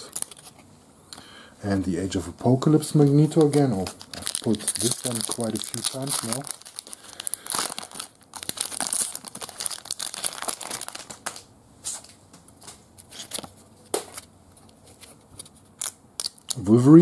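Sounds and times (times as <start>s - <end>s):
foil wrapper crinkling and tearing: 0.0s - 0.5s, 3.3s - 11.5s, 15.8s - 16.6s
cards clicking and rustling: 3.3s - 6.9s.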